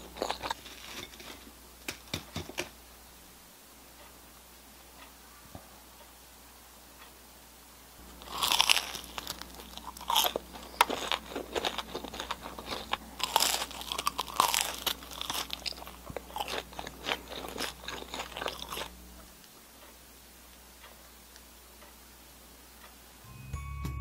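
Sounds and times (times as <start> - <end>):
crunching bites of fried food: 0.0 - 1.0, 8.0 - 19.0
crackly chewing: 0.0 - 2.7, 8.0 - 22.0.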